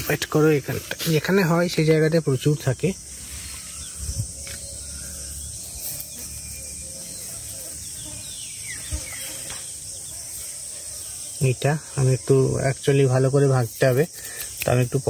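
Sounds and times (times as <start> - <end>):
insect chorus drone: 0.0 - 15.0
fingers rustling in leaves: 0.1 - 7.8.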